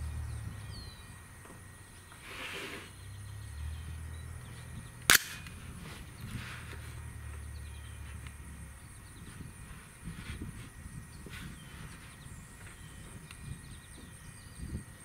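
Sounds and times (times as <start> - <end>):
rifle shot: 5.1 - 5.6.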